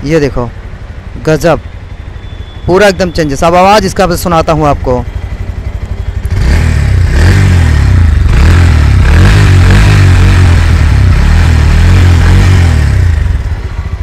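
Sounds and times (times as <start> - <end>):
motorcycle engine revving: 4.1 - 14.0.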